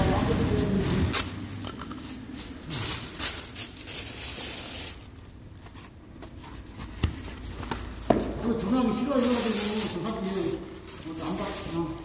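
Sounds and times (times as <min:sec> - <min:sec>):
rustling and scraping handling noise: 0:00.0 - 0:12.0.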